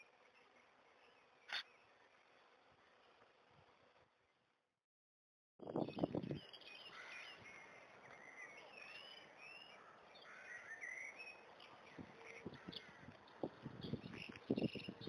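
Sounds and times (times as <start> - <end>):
small birds singing and chirping: 5.7 - 15.0.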